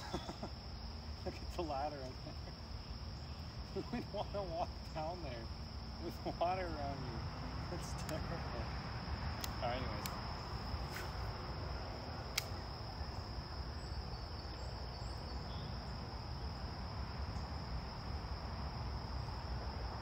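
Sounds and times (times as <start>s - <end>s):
insects trilling: 0.0s - 20.0s
low outdoor rumble: 0.0s - 20.0s
sharp click: 9.4s - 10.2s, 12.3s - 12.6s.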